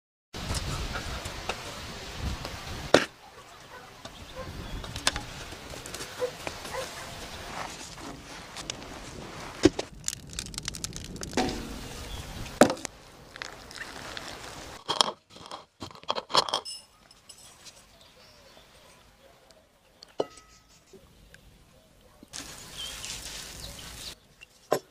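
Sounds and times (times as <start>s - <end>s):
wood fire crackling: 5.0s - 15.4s, 22.3s - 24.2s
steady hiss: 7.7s - 14.8s, 22.4s - 24.2s
wood knocking and clattering: 10.6s - 12.0s.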